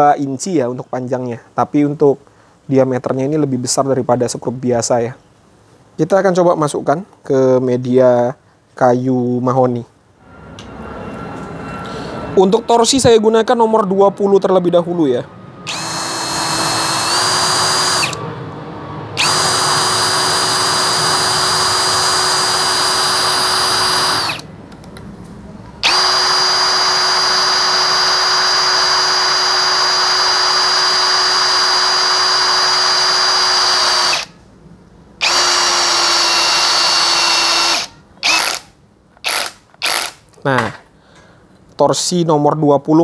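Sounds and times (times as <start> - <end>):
drill motor whining: 15.6 - 18.3, 19.2 - 24.5, 25.8 - 34.3, 35.2 - 40.2
drill trigger bursts: 15.7 - 18.3, 19.2 - 24.5, 25.8 - 34.4, 35.2 - 40.2.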